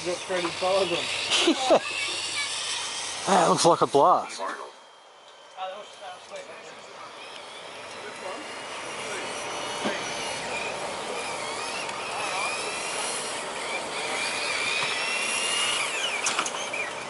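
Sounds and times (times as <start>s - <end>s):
electric motors whining: 0.0s - 17.0s.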